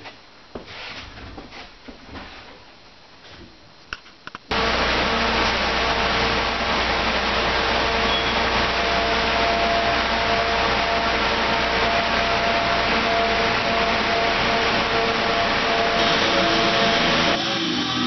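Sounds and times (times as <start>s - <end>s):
air mover and dehumidifier whirring: 4.5s - 18.0s.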